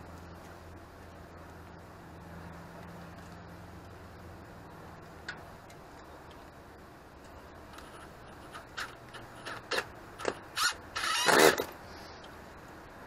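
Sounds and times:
tool scraping wood: 7.8s - 11.7s.

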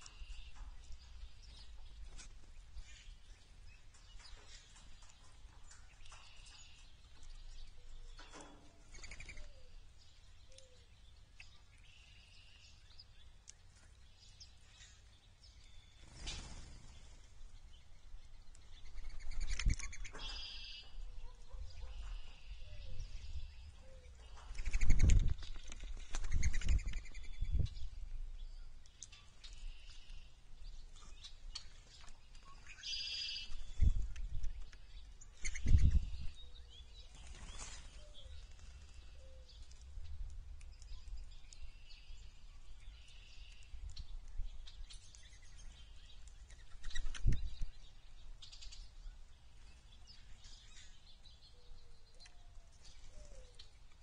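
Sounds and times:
songbirds singing: 0.0s - 54.0s
wingbeats fluttering: 16.0s - 17.5s, 24.2s - 27.3s, 37.0s - 39.7s
bird trill: 18.8s - 25.2s, 32.4s - 33.7s.

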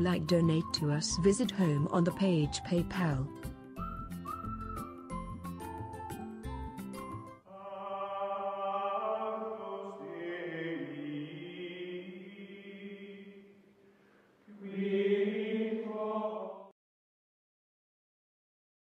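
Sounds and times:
choir-like chanted voices: 7.5s - 13.6s, 14.5s - 16.8s.

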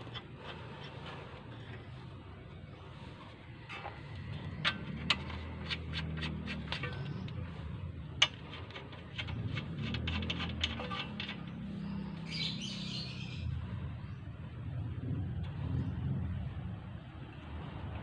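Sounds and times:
tools clicking on metal bolts: 4.5s - 7.5s, 8.1s - 11.7s.

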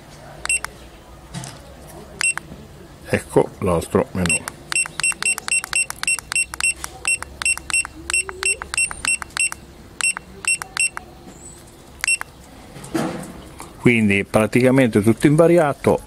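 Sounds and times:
short high beeps: 0.5s - 0.7s, 2.2s - 2.4s, 4.3s - 11.0s, 12.0s - 12.3s.

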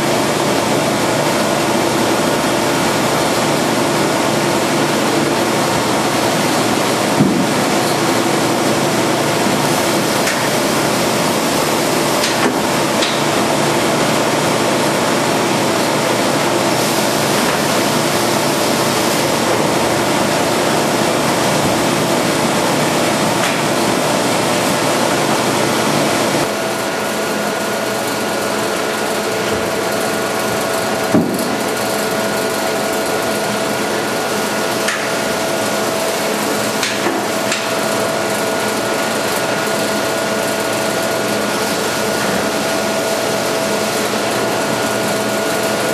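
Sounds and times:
packaging machine whir and hiss: 0.0s - 45.9s
steady hum: 0.0s - 45.9s.

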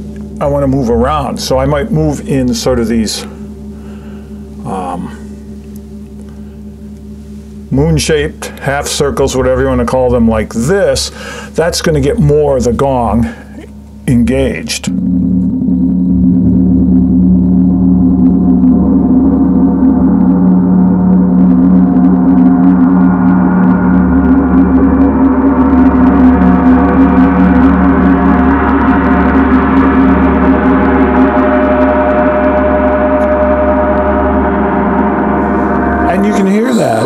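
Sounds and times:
gong played with soft mallets: 14.9s - 37.0s.

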